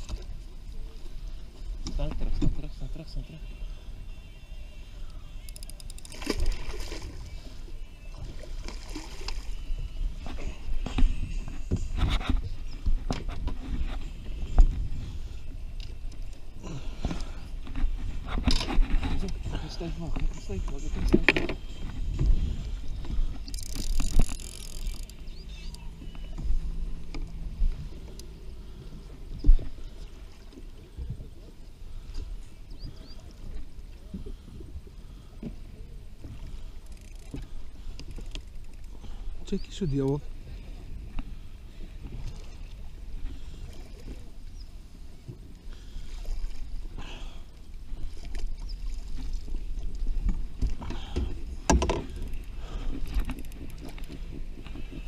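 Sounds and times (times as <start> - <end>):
water splashing against boat: 0.0 - 55.0
wind rumble on microphone: 9.5 - 30.2
knocks on boat: 51.7 - 52.1.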